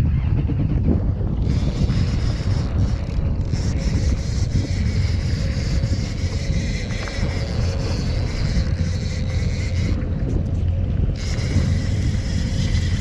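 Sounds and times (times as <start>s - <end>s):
wind buffeting microphone: 0.0s - 13.0s
jet ski engine running: 0.2s - 13.0s.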